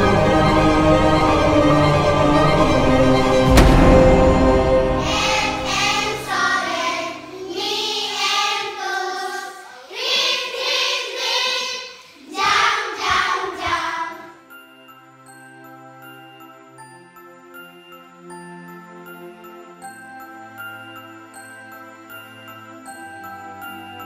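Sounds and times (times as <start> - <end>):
soft background music: 0.0 - 9.5, 12.5 - 24.0
children singing: 0.0 - 14.4.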